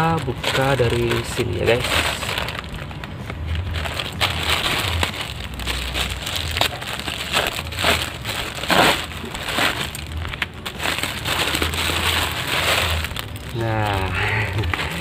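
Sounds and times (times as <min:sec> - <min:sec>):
plastic bag crinkling: 0:00.0 - 0:15.0
scissors cutting plastic: 0:05.8 - 0:10.7.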